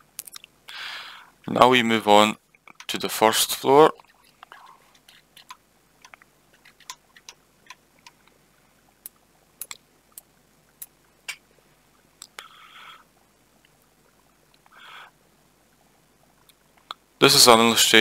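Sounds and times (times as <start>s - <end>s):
computer mouse clicking: 4.9s - 8.2s.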